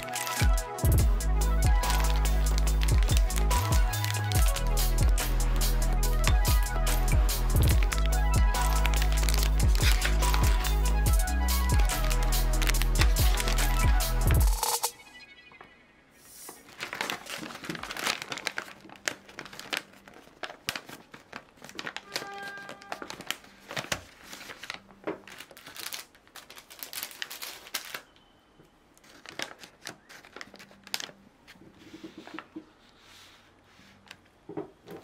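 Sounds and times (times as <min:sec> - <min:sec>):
paper bag crinkling and rustling: 0:01.7 - 0:05.1, 0:07.6 - 0:14.0, 0:16.5 - 0:28.1, 0:29.0 - 0:32.6.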